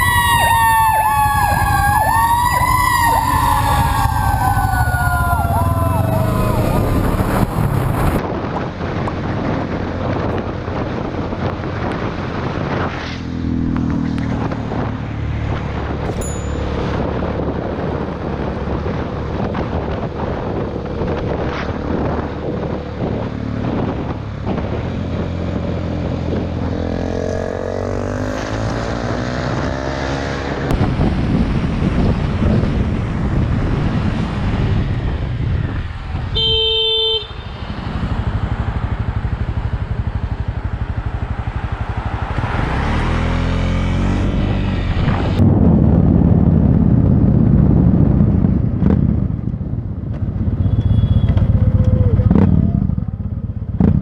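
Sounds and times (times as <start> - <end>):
motorcycle engines revving: 0.0 - 54.0.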